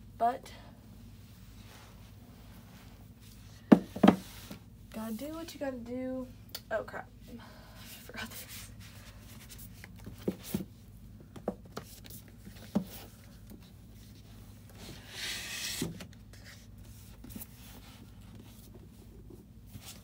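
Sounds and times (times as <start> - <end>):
books knocking on shelf: 3.7 - 4.3
book scraping along shelf: 14.0 - 18.7.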